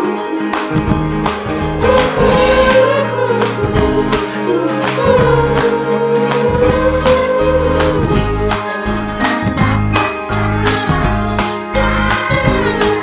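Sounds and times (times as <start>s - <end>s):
guitar: 0.0s - 13.0s
pop song with singer: 0.0s - 13.0s.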